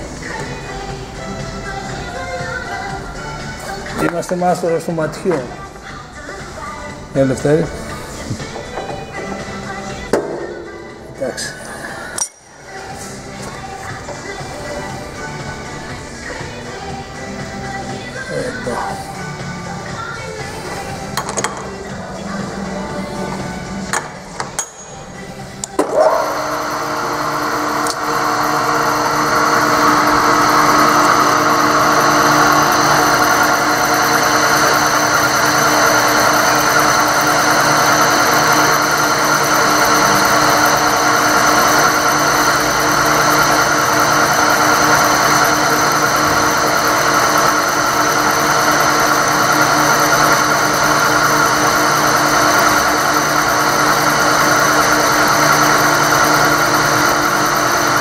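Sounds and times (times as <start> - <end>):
drill press boring: 25.8 - 58.0.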